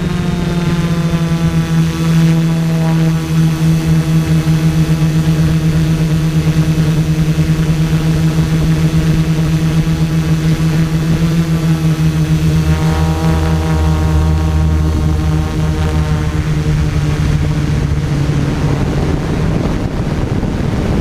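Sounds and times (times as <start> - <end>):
drone propellers humming: 0.0 - 21.0.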